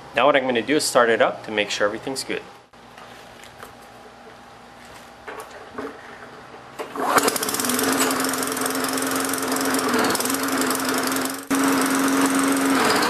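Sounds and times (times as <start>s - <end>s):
lawn mower engine running: 6.8s - 13.0s.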